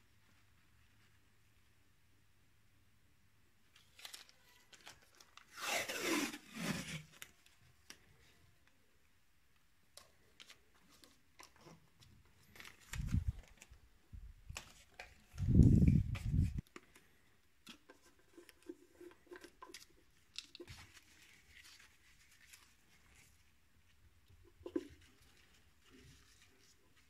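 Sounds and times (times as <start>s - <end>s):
masking tape ripping off roll: 5.3s - 7.2s.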